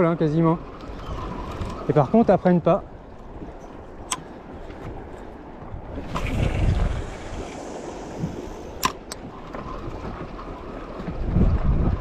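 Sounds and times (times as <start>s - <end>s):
water lapping around boat: 0.0s - 12.0s
wind buffeting microphone: 0.5s - 12.0s
sharp clicks: 8.8s - 9.3s.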